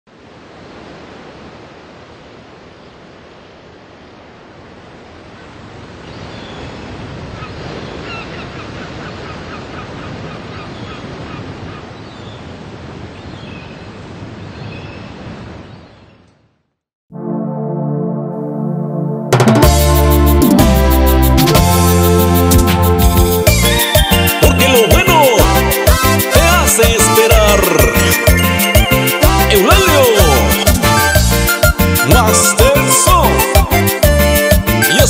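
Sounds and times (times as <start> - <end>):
birds calling: 6.1 - 12.5, 23.6 - 31.3.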